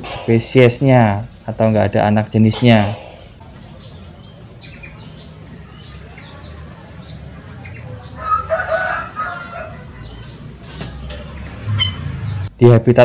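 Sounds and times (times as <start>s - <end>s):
small birds chirping: 0.0s - 13.0s
rooster crowing: 5.9s - 10.0s.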